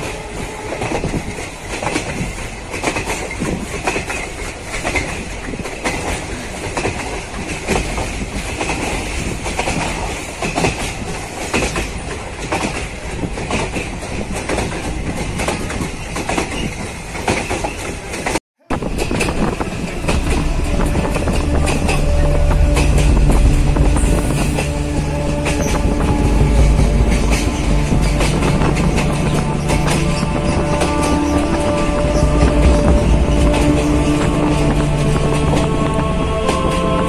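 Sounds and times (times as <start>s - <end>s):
train wheels clattering on rails: 0.0s - 37.0s.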